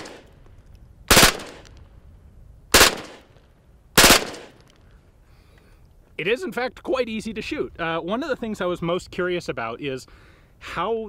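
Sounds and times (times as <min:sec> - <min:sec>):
gunshot echo: 0:00.0 - 0:00.3, 0:01.1 - 0:01.8, 0:02.7 - 0:03.3, 0:04.0 - 0:04.6
submachine gun bursts: 0:01.1 - 0:01.7, 0:02.8 - 0:03.3, 0:04.0 - 0:04.6.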